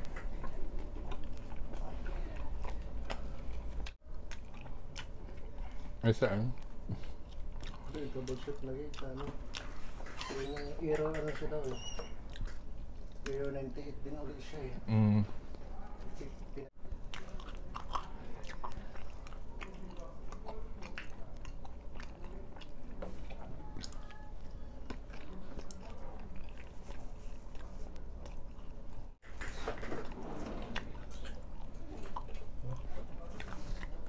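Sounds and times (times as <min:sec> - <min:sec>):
man chewing food: 0:00.0 - 0:34.0.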